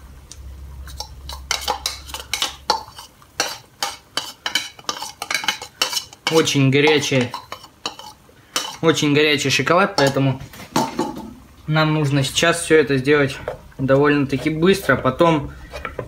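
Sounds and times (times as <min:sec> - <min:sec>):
metal spoon scraping saucepan: 0:00.8 - 0:09.1, 0:14.1 - 0:16.0.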